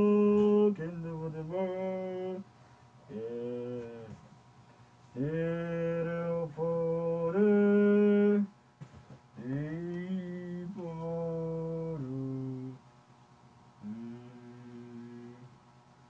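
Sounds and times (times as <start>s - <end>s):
low voice chanting: 3.1s - 4.2s, 5.2s - 8.5s, 9.4s - 12.8s, 13.8s - 15.6s.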